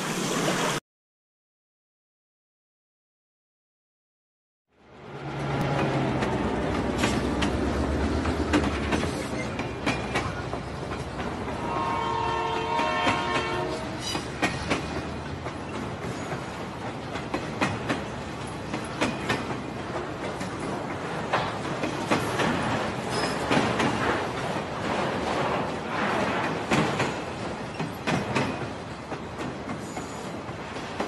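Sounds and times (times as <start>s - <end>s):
train rumbling: 0.0s - 0.8s, 4.8s - 31.0s
wheels clicking over rail joints: 5.6s - 11.6s, 12.6s - 31.0s
train whistle chord: 11.6s - 13.8s.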